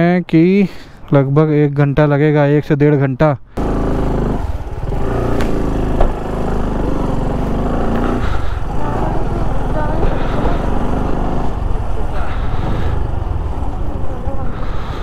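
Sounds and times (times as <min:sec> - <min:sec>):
motorcycle engine idling: 0:03.6 - 0:15.0
faint voices: 0:08.6 - 0:15.0.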